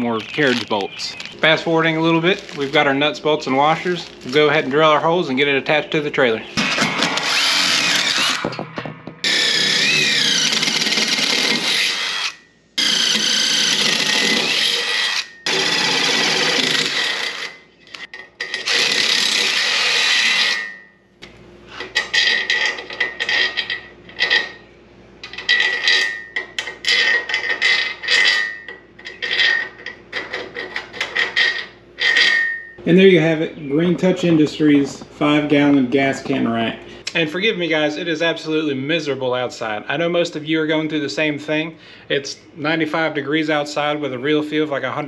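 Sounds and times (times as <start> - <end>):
cordless drill drilling metal: 6.8 - 8.6, 9.2 - 20.7.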